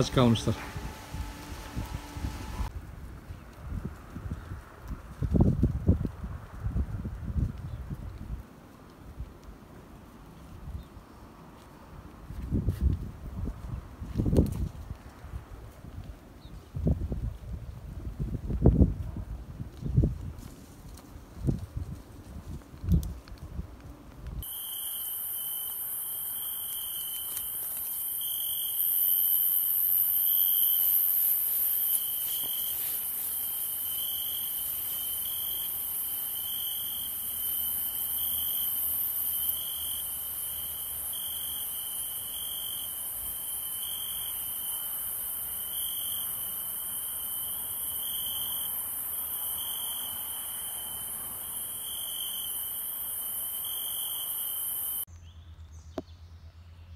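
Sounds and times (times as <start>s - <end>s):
crickets chirping: 24.4s - 55.1s
high-pitched insect hiss: 24.4s - 55.1s.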